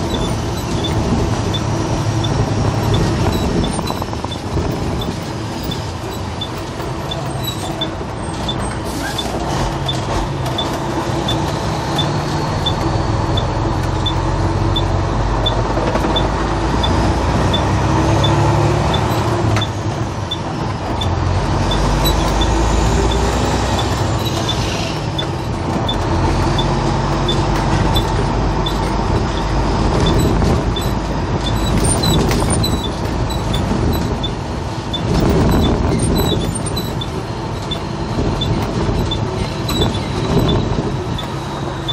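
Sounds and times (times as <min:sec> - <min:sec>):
heavy vehicle engine: 0:00.0 - 0:41.9.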